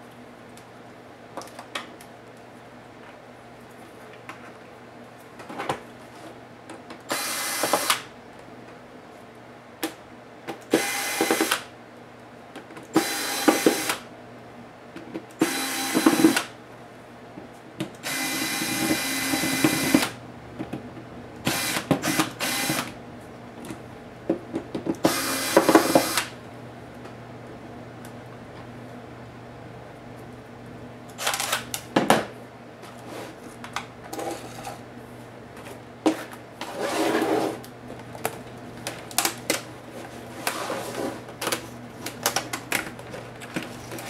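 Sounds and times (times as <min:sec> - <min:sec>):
cordless screwdriver running: 0:07.1 - 0:08.0, 0:13.0 - 0:14.0, 0:15.4 - 0:16.4, 0:18.0 - 0:20.0, 0:21.5 - 0:22.9, 0:25.1 - 0:26.3.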